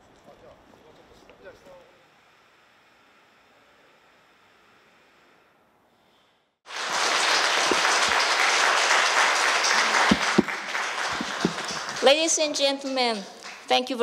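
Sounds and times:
audience applauding: 6.7s - 14.0s.

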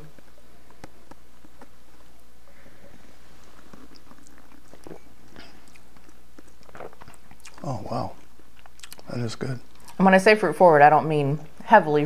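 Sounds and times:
low steady hum: 0.0s - 12.0s
soft slurps: 2.5s - 9.1s
lip clicks: 8.5s - 9.1s.

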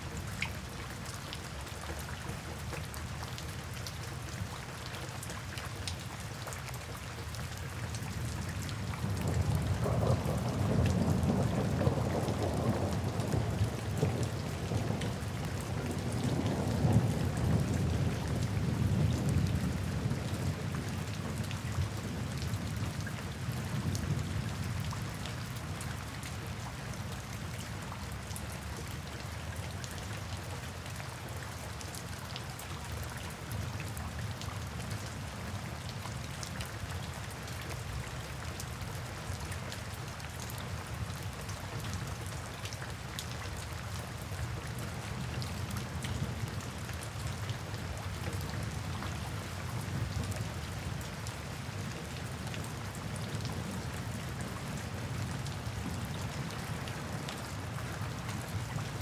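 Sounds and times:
steady rain falling: 0.0s - 59.0s
thunder rumbling: 9.3s - 15.2s.

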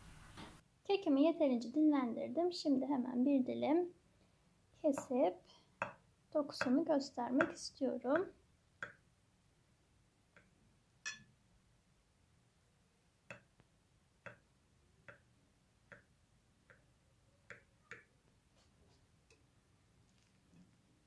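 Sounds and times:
cake server tapping glass plate: 11.0s - 11.3s.

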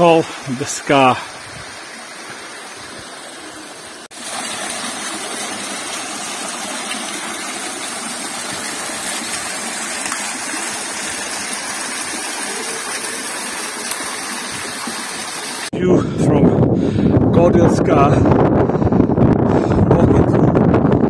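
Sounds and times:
waterfall splashing into pool: 1.8s - 15.7s.

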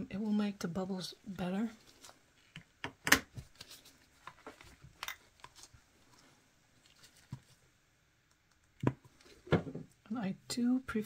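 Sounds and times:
soft taps and rustles: 3.3s - 7.6s.

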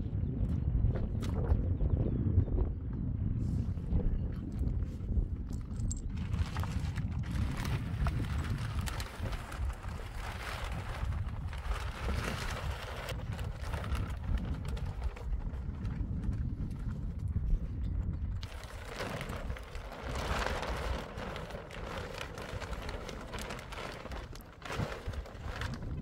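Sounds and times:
wind buffeting microphone: 0.0s - 26.0s
plastic sheet rustling and crinkling: 5.6s - 17.7s, 18.4s - 26.0s.

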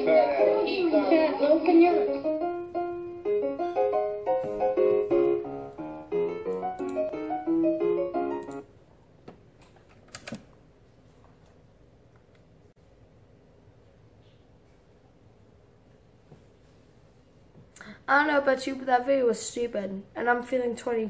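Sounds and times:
piano-like keyboard melody: 0.0s - 8.7s.

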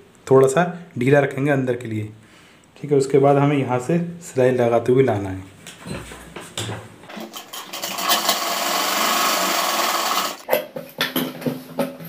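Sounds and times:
sewing machine running: 7.1s - 10.4s.

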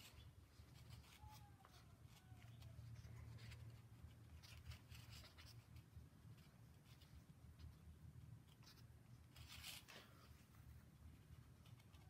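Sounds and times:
faint room hum: 0.0s - 12.0s
string rustling on cloth: 0.0s - 12.0s.

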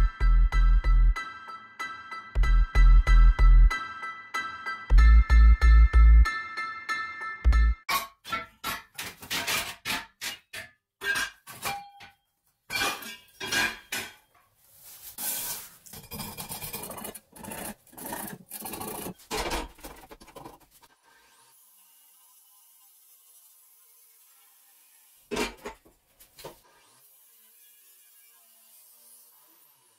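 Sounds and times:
metal scraping and rubbing: 14.8s - 21.0s.

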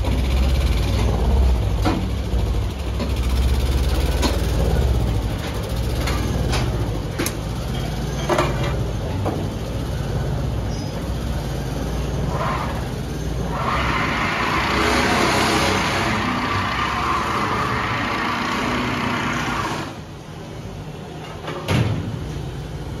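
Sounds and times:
sewing machine rattling hum: 14.0s - 20.0s.

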